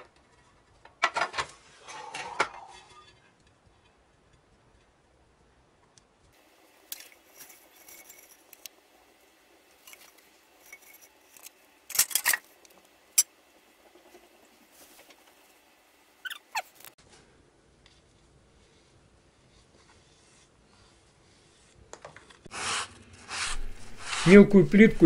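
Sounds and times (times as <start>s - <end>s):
short squeaks: 16.2s - 16.9s.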